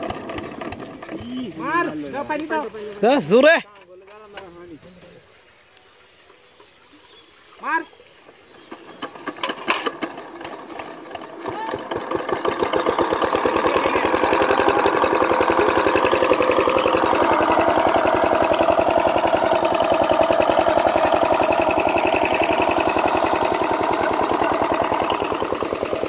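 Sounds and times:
diesel pump engine chugging: 0.0 - 2.8, 8.4 - 26.0.

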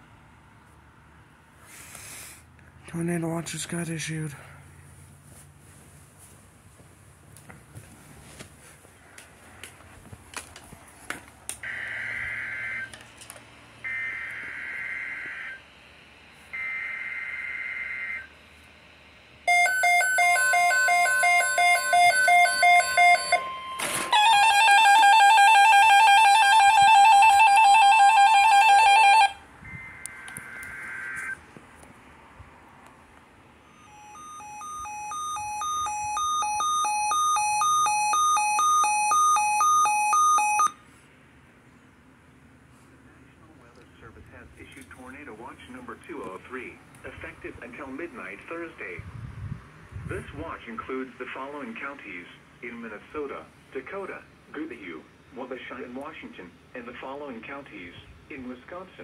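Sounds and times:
radio two-pitch beeping alarm: 11.6 - 13.0, 13.8 - 15.7, 16.4 - 18.4, 19.5 - 31.4, 33.6 - 40.8
harsh attention tone: 19.5 - 31.4, 33.6 - 40.8
rapid beeping: 19.5 - 31.4, 33.7 - 40.7
screeching data bursts: 26.3 - 31.4
steady alert tone: 33.7 - 40.7.

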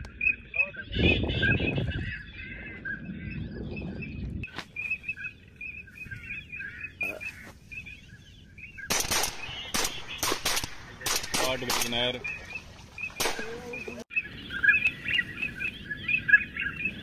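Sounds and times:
birds chirping: 0.0 - 17.0
shotgun shots: 8.9 - 12.2, 13.2 - 13.7.

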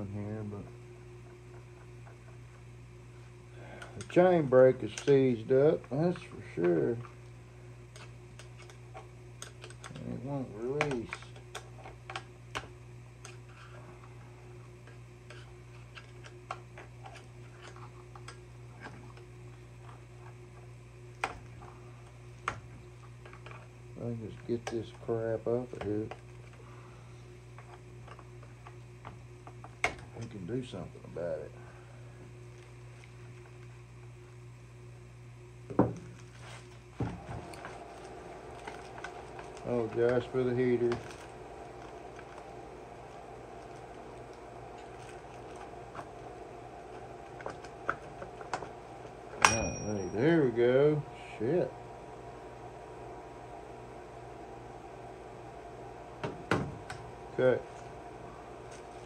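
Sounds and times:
low electrical hum: 0.0 - 59.0.

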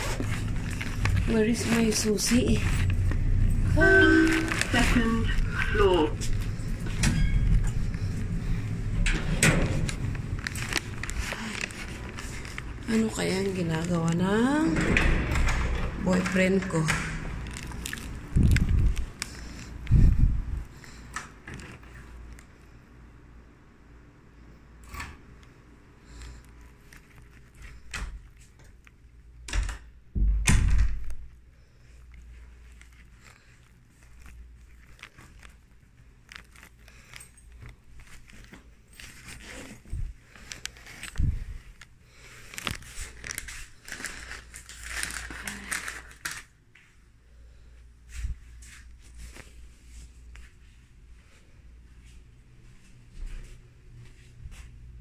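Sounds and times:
plastic bag rustling: 0.0 - 9.0, 9.6 - 14.7, 16.0 - 20.6, 31.8 - 46.6.

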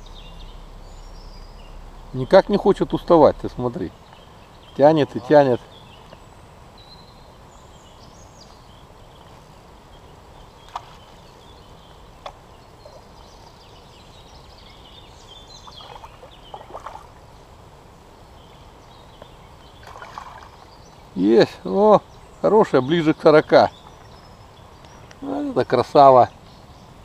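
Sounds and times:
faint bird calls: 0.0 - 17.2, 18.3 - 27.0
low background hiss: 0.0 - 27.0
fish splashing at the surface: 15.8 - 17.1, 19.8 - 20.6.

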